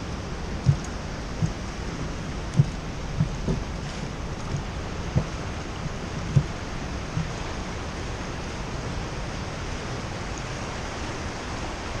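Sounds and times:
whitewater rushing: 0.0 - 12.0
short low thump: 0.6 - 1.6, 2.5 - 3.7, 4.4 - 5.4, 6.2 - 7.3.

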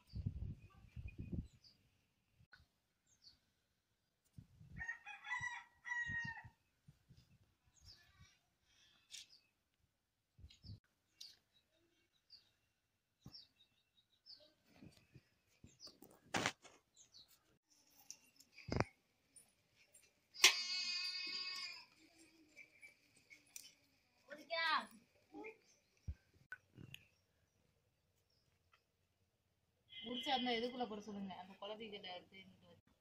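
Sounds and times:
rooster crowing: 4.8 - 6.6
faint chirps and clicks: 10.4 - 12.5, 17.1 - 29.0.

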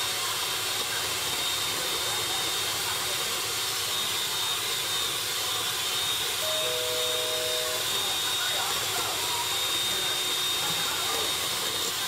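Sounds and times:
electric hand mixer whirring: 0.0 - 12.0.

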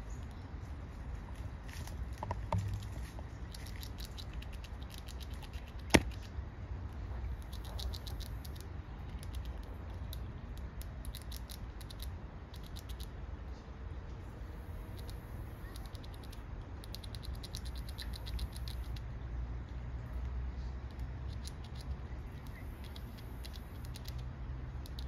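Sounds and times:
squirrel gnawing nut shell: 1.7 - 6.3, 7.3 - 13.1, 14.6 - 19.0, 20.9 - 24.2, 24.8 - 25.0.

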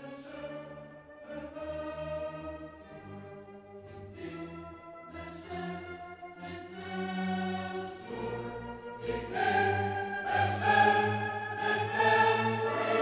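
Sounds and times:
orchestral music: 0.0 - 13.0
choir singing held chords: 3.8 - 13.0.

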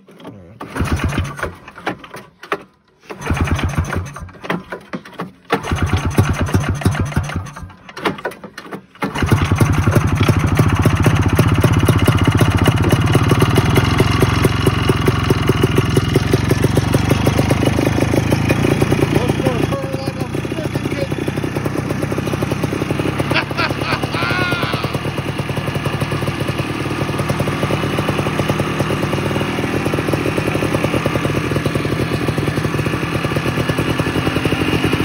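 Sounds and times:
snowmobile engine sputtering and running: 9.1 - 35.0.

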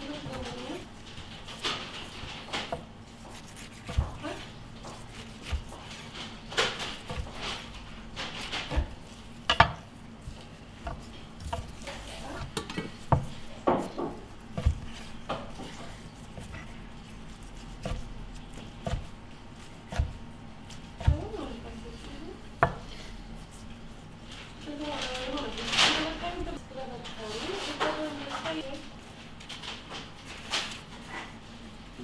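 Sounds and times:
knife slicing sushi rolls: 1.4 - 22.0.

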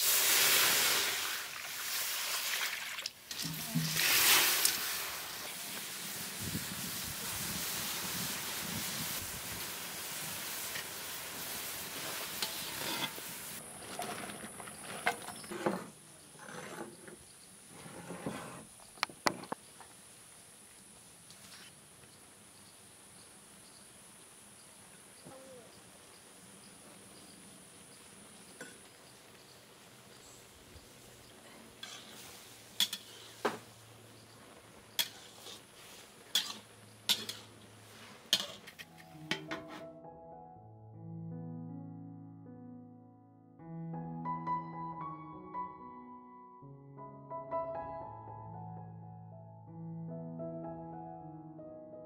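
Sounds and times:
lentils bubbling and sizzling: 0.0 - 14.3, 27.8 - 38.9
faint chirps: 22.1 - 31.7.

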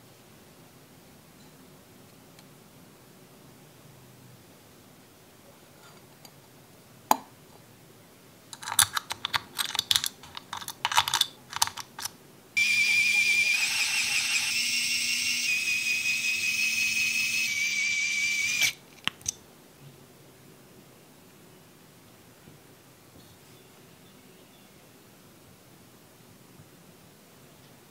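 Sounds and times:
electric screwdriver whine: 12.6 - 18.8.

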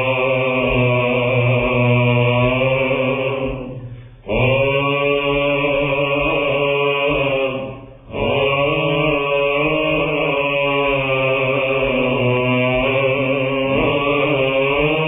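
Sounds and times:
held low vocal drone: 0.0 - 15.0
men chanting melismatic melody: 0.0 - 15.0.

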